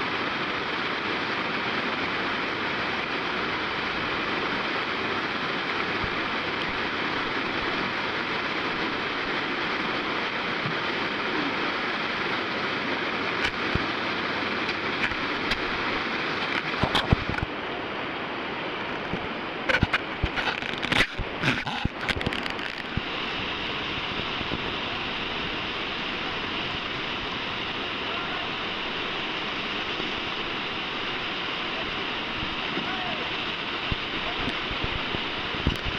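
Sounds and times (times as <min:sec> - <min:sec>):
river rapids rushing: 0:00.0 - 0:35.9
sharp knocks and crackles: 0:16.4 - 0:17.5, 0:19.0 - 0:23.1.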